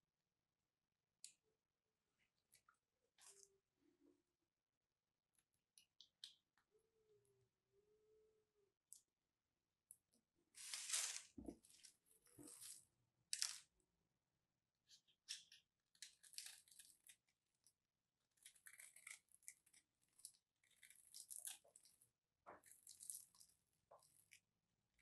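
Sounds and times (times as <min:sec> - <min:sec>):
soap crumbling under fingertips: 0:18.4 - 0:24.4.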